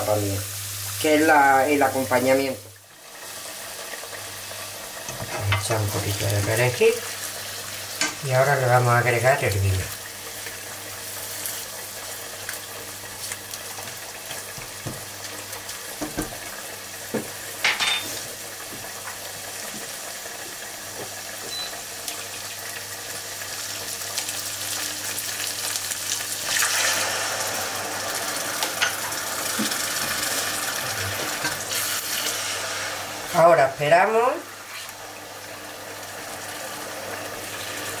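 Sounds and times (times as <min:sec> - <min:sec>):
vegetables sizzling in frying pan: 0:00.0 - 0:38.0.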